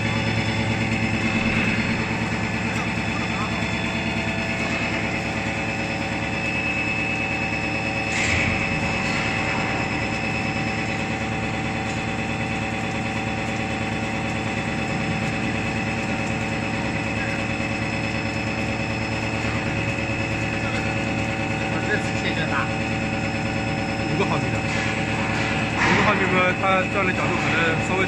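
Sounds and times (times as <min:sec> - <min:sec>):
milling machine humming: 0:00.0 - 0:28.0.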